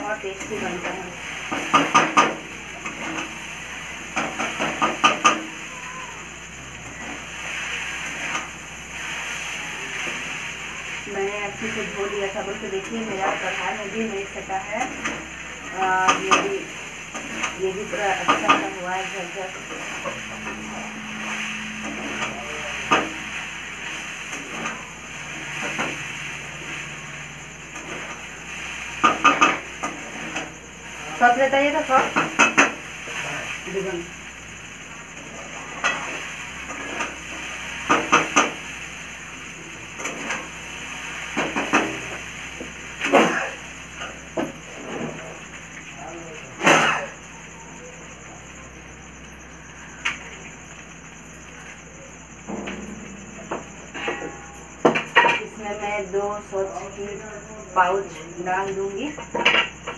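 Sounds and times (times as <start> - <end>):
noodles sizzling in a pan: 0.0 - 47.5
steady hiss: 0.0 - 59.9
metal spatula scraping wok: 16.0 - 31.0.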